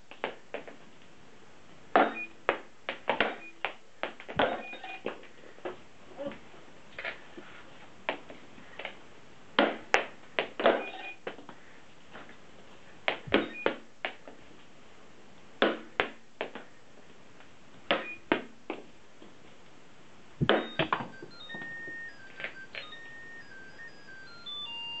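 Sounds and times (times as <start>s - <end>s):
electronic beep tune: 2.0s - 2.4s, 4.4s - 5.0s, 10.8s - 11.2s, 13.3s - 13.8s, 20.4s - 25.0s
short electronic beep: 20.4s - 25.0s.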